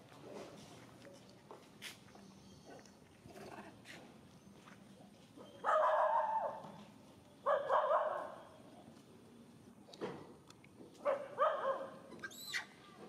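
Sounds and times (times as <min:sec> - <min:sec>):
monkey screaming: 0:12.2 - 0:12.8.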